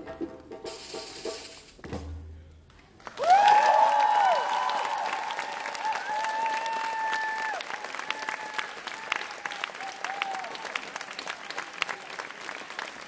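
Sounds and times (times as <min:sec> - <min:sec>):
djembe drum strokes: 0:00.0 - 0:02.5
audience applause: 0:03.0 - 0:13.0
loud whooping cheers: 0:03.1 - 0:12.3.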